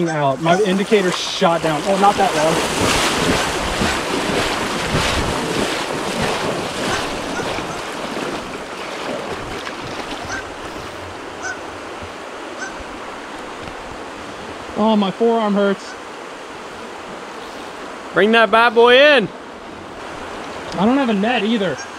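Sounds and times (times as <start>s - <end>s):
river water rushing: 0.0s - 21.9s
wind buffeting microphone: 1.6s - 14.8s.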